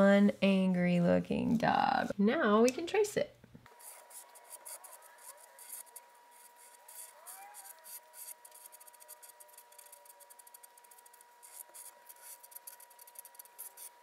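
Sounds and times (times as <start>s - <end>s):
marker scratching on paper: 3.8s - 14.0s.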